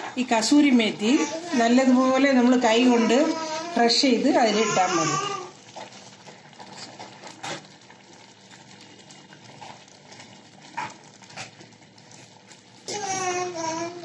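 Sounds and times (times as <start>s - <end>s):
person speaking: 0.4s - 5.5s.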